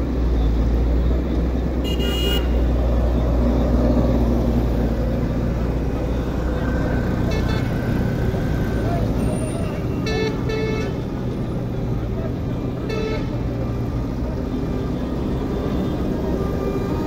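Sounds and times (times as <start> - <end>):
road traffic: 0.0 - 17.0
vehicle horn toot: 1.8 - 2.7, 7.3 - 7.9, 10.0 - 11.0, 12.8 - 13.4.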